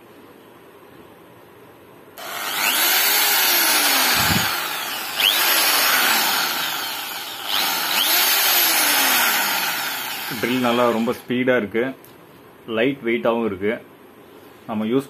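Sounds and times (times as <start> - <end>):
power drill motor whining: 2.2 - 11.3.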